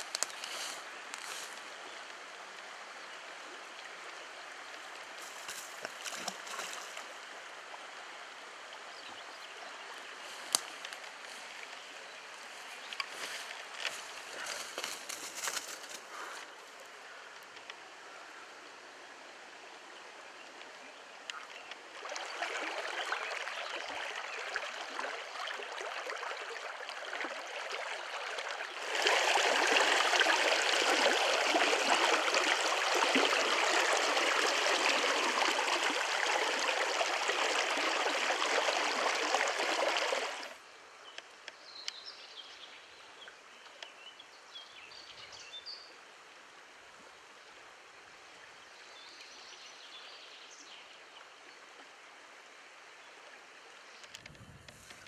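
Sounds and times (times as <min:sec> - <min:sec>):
river water rushing over stones: 0:21.5 - 0:40.6.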